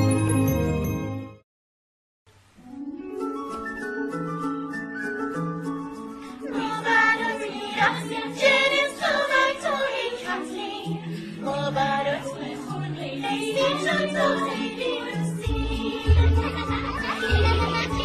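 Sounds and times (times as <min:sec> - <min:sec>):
light instrumental backing: 0:02.6 - 0:08.8
women singing together: 0:06.5 - 0:18.0.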